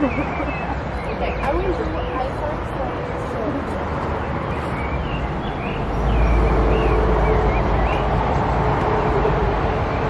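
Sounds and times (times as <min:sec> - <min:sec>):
bird singing: 0:00.0 - 0:03.5, 0:04.2 - 0:08.3
open-air rumble: 0:00.0 - 0:10.0.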